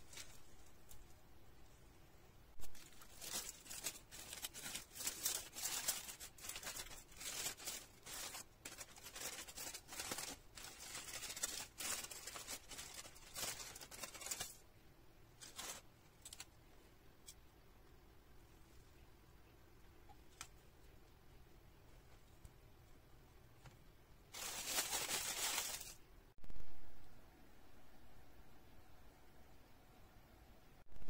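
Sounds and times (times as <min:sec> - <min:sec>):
aluminium foil crinkling: 0:00.0 - 0:01.1, 0:02.6 - 0:14.6, 0:15.4 - 0:16.6, 0:24.3 - 0:26.0.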